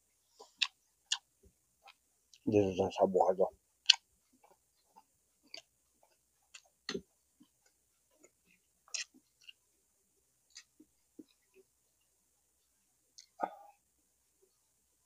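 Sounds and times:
person chewing: 0.4s - 2.4s, 3.8s - 9.6s, 10.5s - 12.1s, 13.1s - 13.7s.

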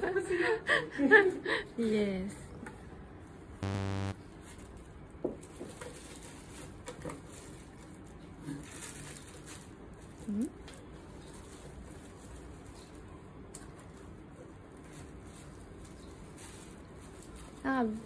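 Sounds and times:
brief pitched sounds: 3.6s - 4.2s.

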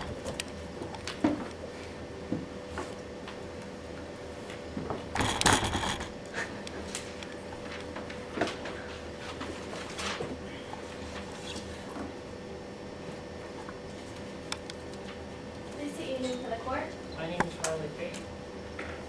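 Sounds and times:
faint room hum: 0.0s - 19.0s
papers rustling: 7.0s - 10.4s.

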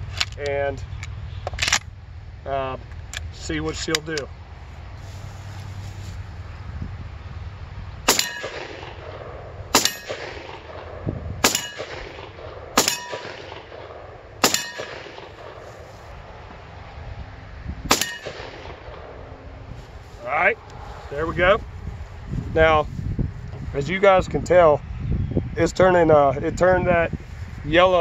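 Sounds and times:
metallic ring of steel target: 8.1s - 10.8s, 11.4s - 13.6s, 14.4s - 15.6s, 17.9s - 19.1s
shotgun shots: 8.1s - 15.6s, 17.9s - 19.2s.

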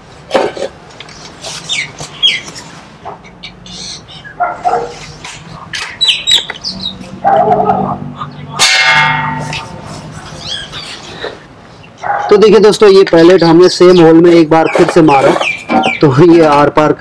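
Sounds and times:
birds chirping: 0.9s - 16.9s
steel plate ringing: 8.6s - 9.9s.

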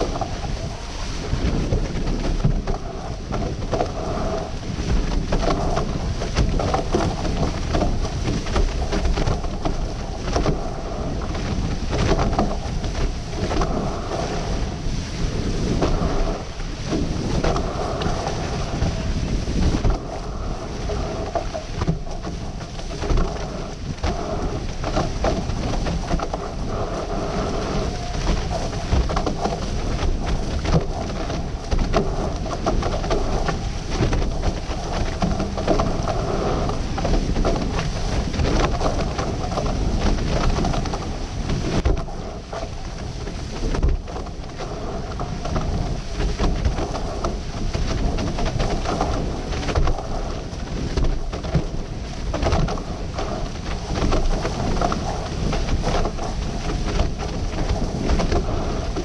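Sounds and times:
water rushing past hulls: 0.0s - 59.0s
wind buffeting microphone: 0.0s - 59.0s.

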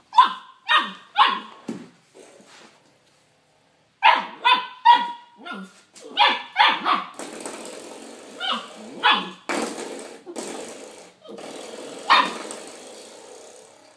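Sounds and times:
puppy barking: 0.1s - 1.6s, 4.0s - 7.2s, 8.4s - 9.5s, 12.1s - 12.4s.

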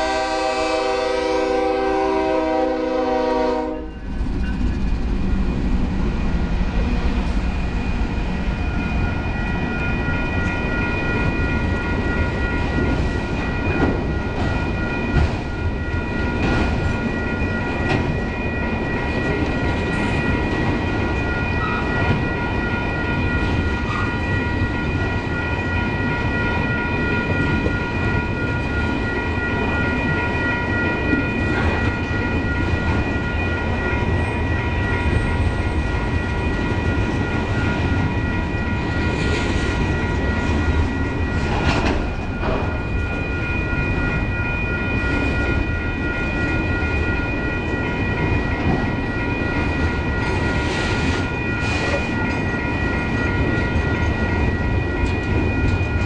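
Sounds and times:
locomotive air horn: 0.0s - 4.0s
crossing bell ringing: 0.0s - 56.0s
freight cars rumbling on rails: 0.0s - 56.0s.

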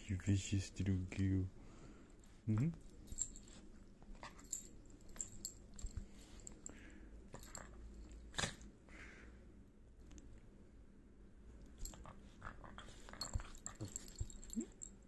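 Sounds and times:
dog snapping: 8.3s - 8.7s.

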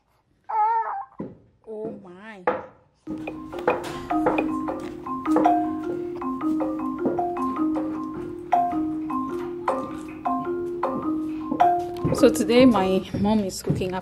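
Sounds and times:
marimba-like background music: 3.1s - 14.0s.

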